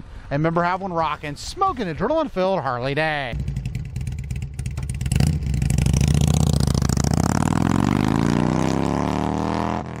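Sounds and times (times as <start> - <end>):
motorcycle engine revving: 3.3 - 10.0.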